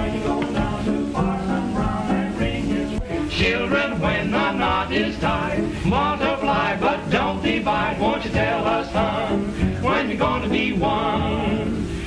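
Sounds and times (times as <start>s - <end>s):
men singing together: 0.0s - 12.0s
musical accompaniment: 0.0s - 12.0s.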